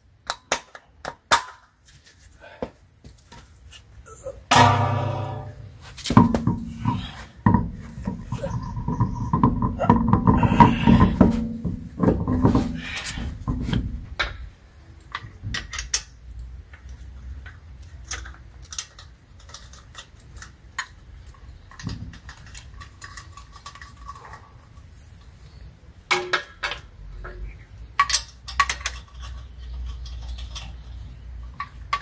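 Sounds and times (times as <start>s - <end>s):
wheel knocking and rubbing on hub: 4.5s - 14.1s.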